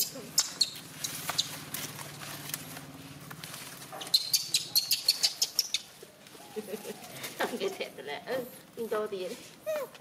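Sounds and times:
baby monkeys squeaking: 0:00.0 - 0:01.8, 0:04.0 - 0:07.3.

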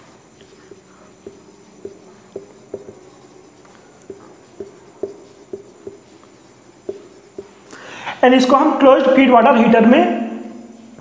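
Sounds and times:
marker squeaking on whiteboard: 0:00.0 - 0:07.8.

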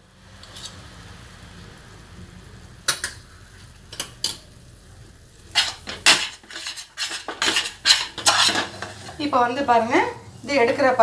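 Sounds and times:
metal spoon scraping steel pan: 0:05.5 - 0:09.3.

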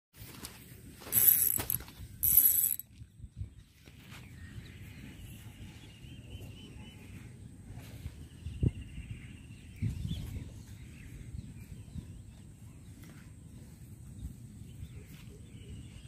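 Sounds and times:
fishing reel drag ratcheting: 0:01.1 - 0:02.8.

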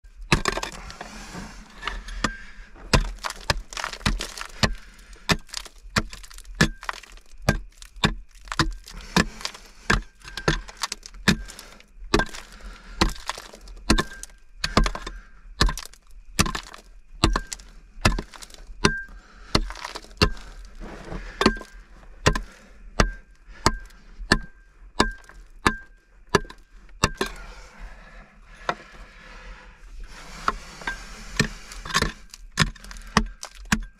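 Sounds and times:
pick striking rock: 0:00.2 - 0:00.9, 0:01.8 - 0:27.4
rock cracking and breaking: 0:00.2 - 0:27.5, 0:31.3 - 0:33.9.

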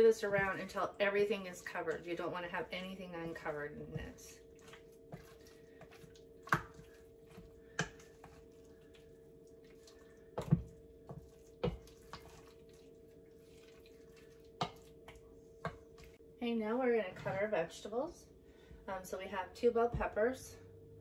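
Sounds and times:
wet squishing of marinade: 0:00.0 - 0:16.2
faint steady hum: 0:00.0 - 0:21.0.

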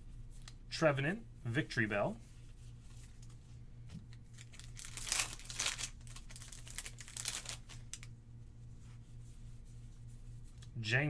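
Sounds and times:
foil wrapper crinkling: 0:04.1 - 0:08.1.

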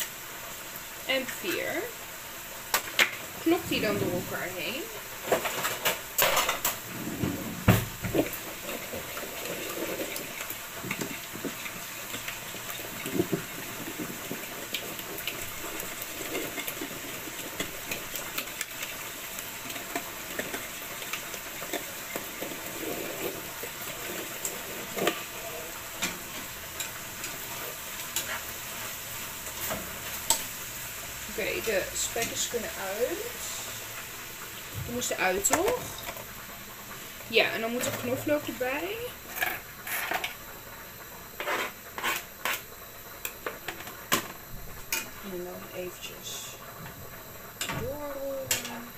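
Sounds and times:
bacon sizzling in a pan: 0:00.0 - 0:48.9.

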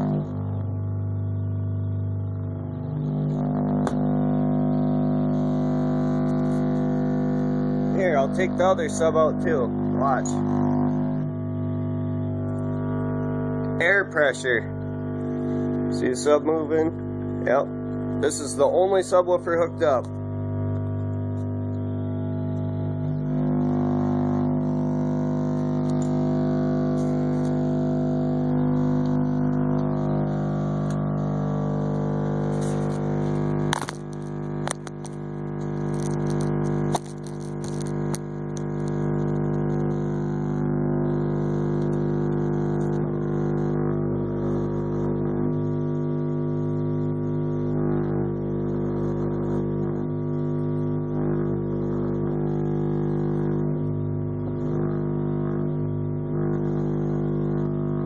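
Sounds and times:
subwoofer bass tone drone: 0:00.0 - 0:58.0
sharp clicks: 0:33.7 - 0:35.2, 0:36.0 - 0:38.2.

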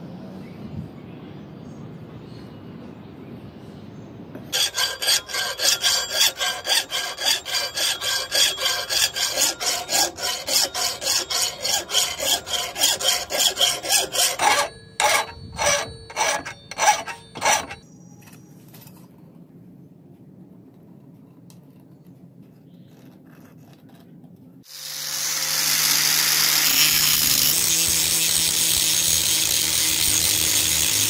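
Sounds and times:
hand file scraping steel: 0:04.5 - 0:17.8, 0:25.5 - 0:31.0.

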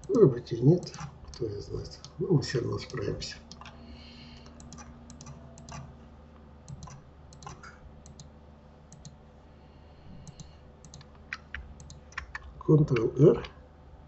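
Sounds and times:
computer mouse clicks: 0:04.4 - 0:05.9, 0:06.7 - 0:08.3, 0:08.9 - 0:09.2, 0:10.2 - 0:13.1
keyboard clicks: 0:04.4 - 0:05.9, 0:06.7 - 0:08.3, 0:08.9 - 0:09.2, 0:10.2 - 0:13.5.

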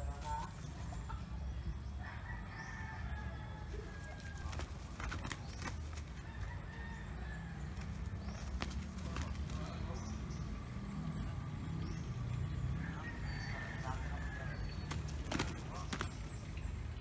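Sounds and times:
rooster crowing: 0:02.0 - 0:04.7, 0:06.2 - 0:07.8, 0:12.8 - 0:14.8.

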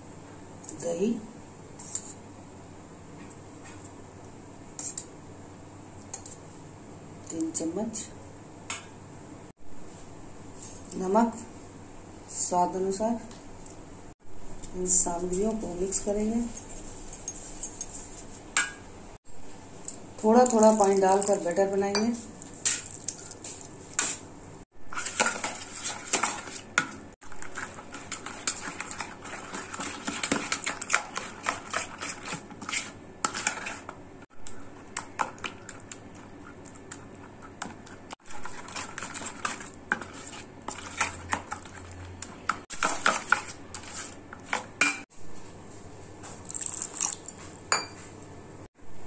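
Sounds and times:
metal spoon scraping metal bowl: 0:27.4 - 0:34.0, 0:42.8 - 0:44.5.

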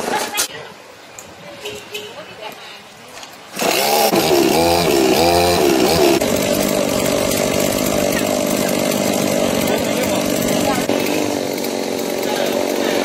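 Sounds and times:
chainsaw engine revving: 0:03.5 - 0:13.0.

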